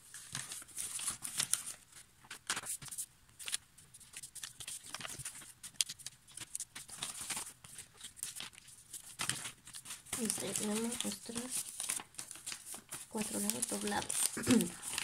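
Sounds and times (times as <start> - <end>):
paper rustling: 0.0 - 15.0
fingers swiping paper creases: 9.8 - 15.0.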